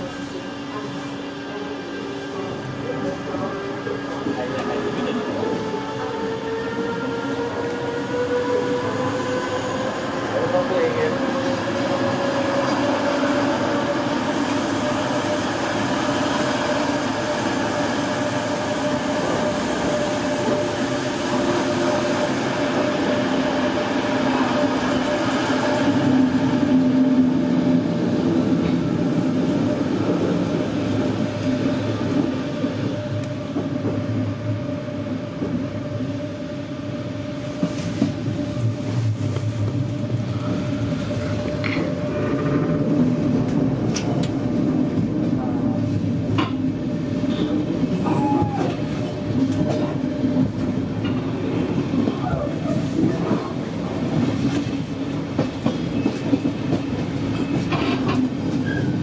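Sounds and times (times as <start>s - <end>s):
train running noise: 0.0s - 59.0s.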